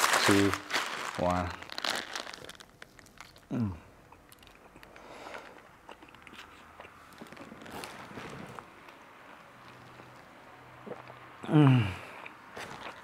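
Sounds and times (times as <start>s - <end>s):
bread sandwich crunching: 0.0s - 3.5s, 4.2s - 8.7s.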